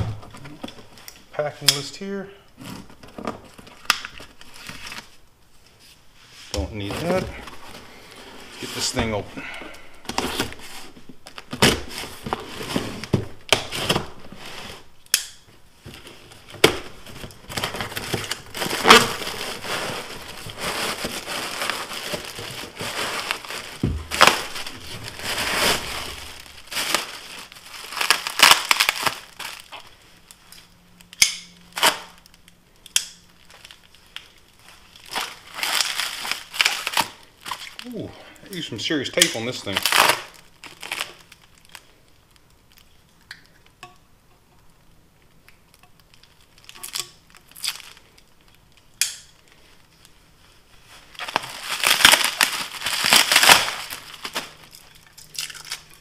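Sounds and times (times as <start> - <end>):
plastic and bubble wrap crinkling: 0.0 - 43.8, 45.2 - 56.0
cardboard box and tape tearing: 10.1 - 14.9, 17.5 - 29.8, 51.2 - 54.6.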